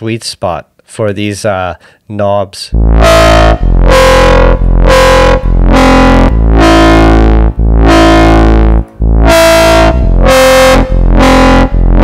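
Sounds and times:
distorted synth bass notes: 0:02.7 - 0:12.0.

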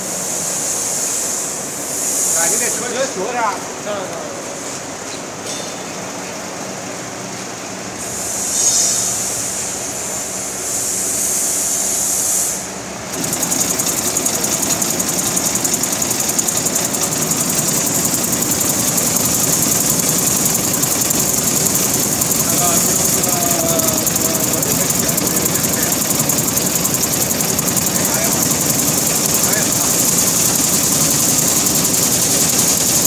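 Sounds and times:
machine motor hum: 0:13.0 - 0:33.0
vibrating sieves rattling: 0:13.0 - 0:33.0
hissing rushes: 0:13.1 - 0:33.0.

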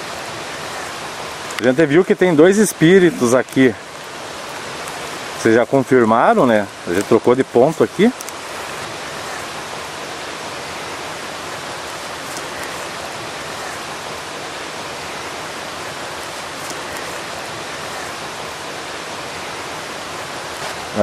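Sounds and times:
waterfall roaring: 0:00.0 - 0:21.0.

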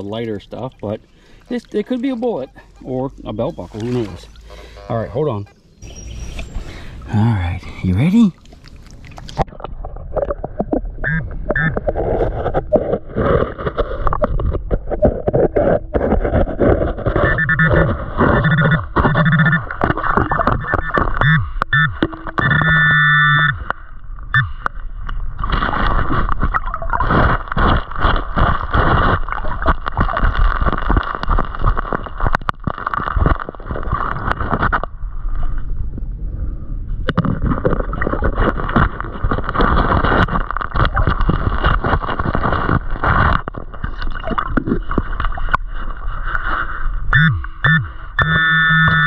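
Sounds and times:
gurgling water: 0:00.0 - 0:36.0, 0:37.0 - 0:47.2
stones clattering underwater: 0:08.4 - 0:22.7, 0:23.6 - 0:35.7, 0:37.0 - 0:47.0.

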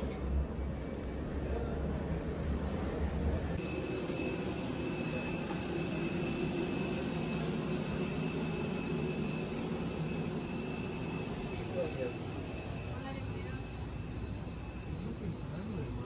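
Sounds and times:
constant high whine: 0:00.0 - 0:16.0.

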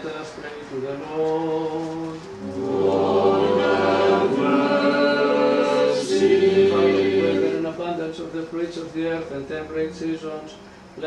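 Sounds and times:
choir singing a cappella: 0:02.3 - 0:07.8.

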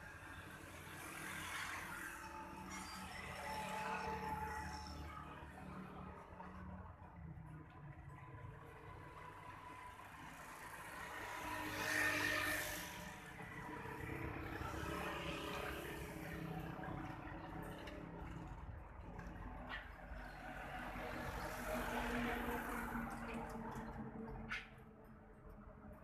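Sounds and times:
motor vehicle passing: 0:10.9 - 0:25.9.

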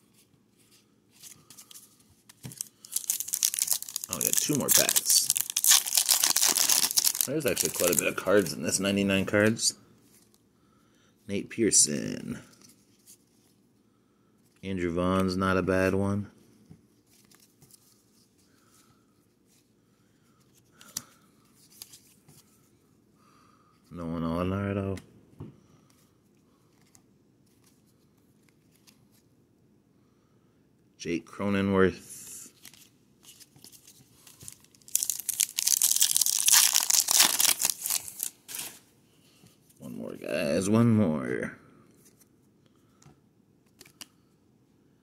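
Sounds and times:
cards rustling and scraping: 0:00.2 - 0:08.5, 0:32.6 - 0:38.8
foil wrapper tearing and crinkling: 0:02.5 - 0:08.2, 0:34.5 - 0:38.8.

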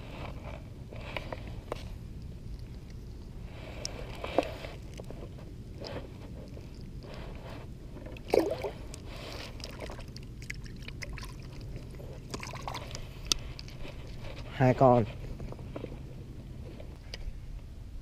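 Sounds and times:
water sloshing and splashing: 0:05.8 - 0:14.5.

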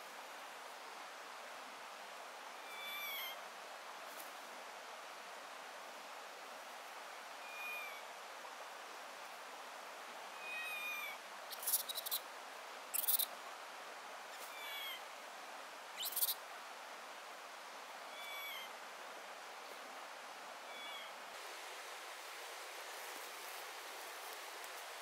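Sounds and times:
steady outdoor hiss: 0:00.0 - 0:25.0
bird chirping: 0:11.5 - 0:12.2, 0:13.0 - 0:13.3, 0:16.0 - 0:16.4.

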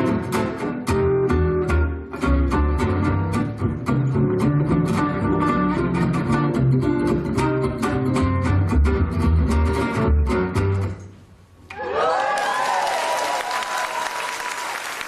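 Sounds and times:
gypsy jazz acoustic guitar: 0:00.0 - 0:11.1.

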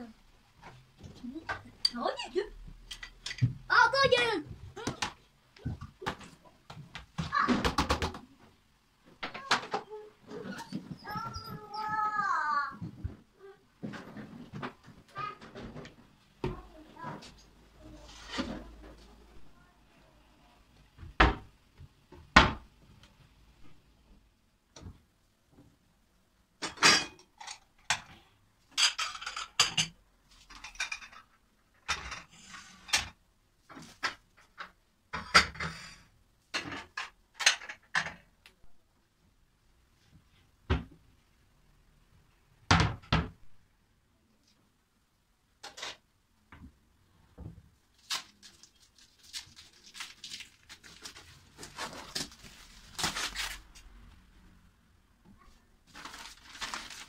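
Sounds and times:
paper rustling: 0:47.9 - 0:54.0, 0:55.9 - 0:57.0.

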